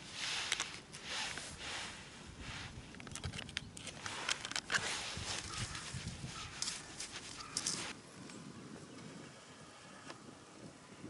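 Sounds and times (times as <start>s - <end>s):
plastic bag crinkling: 2.8s - 7.9s.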